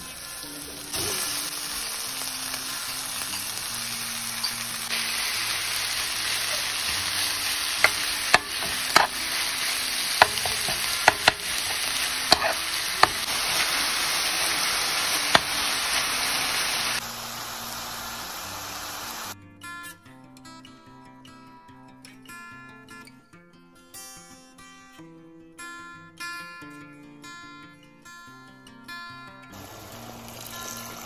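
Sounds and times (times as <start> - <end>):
food sizzling in a frying pan: 0.0 - 19.4, 29.5 - 31.0
spatula knocking against pan: 7.8 - 13.3.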